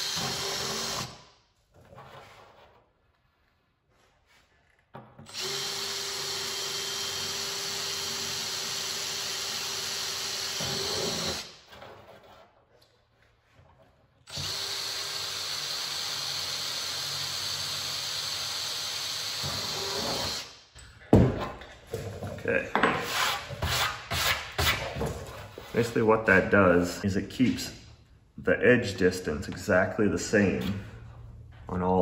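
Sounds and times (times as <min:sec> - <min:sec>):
cordless drill boring aluminium: 0:00.0 - 0:01.2, 0:05.3 - 0:11.5, 0:14.3 - 0:20.5.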